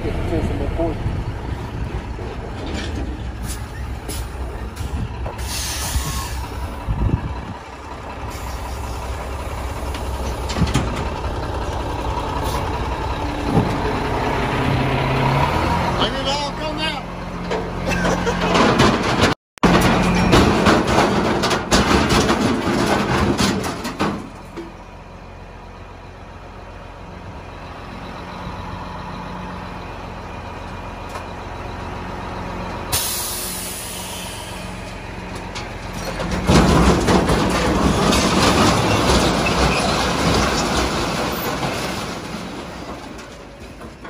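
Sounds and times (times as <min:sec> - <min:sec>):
dump truck diesel engine running: 0:00.0 - 0:44.0
loud clatter: 0:17.5 - 0:24.5, 0:35.4 - 0:44.0
scrap metal sliding out clattering: 0:35.4 - 0:44.0.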